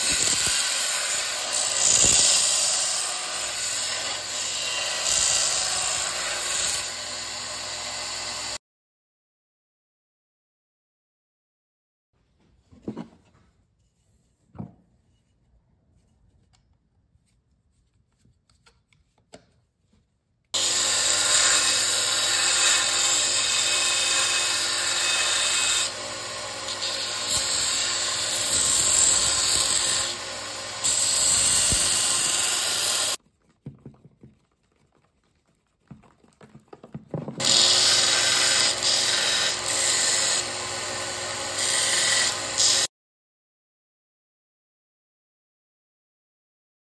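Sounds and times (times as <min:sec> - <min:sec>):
belt sander grinding wood: 0:00.0 - 0:08.6, 0:20.6 - 0:33.2, 0:37.1 - 0:42.9.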